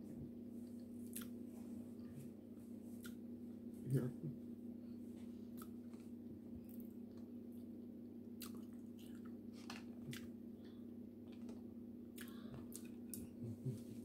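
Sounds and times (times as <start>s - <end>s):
steady low hum: 0.0s - 14.0s
quiet chewing: 0.6s - 1.4s, 2.9s - 3.2s, 5.4s - 7.7s, 8.4s - 14.0s.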